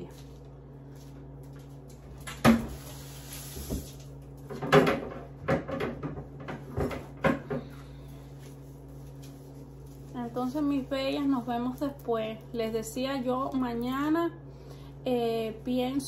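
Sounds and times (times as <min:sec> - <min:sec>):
steady low hum: 0:00.0 - 0:16.0
kitchen knocks and clatters: 0:03.6 - 0:07.8.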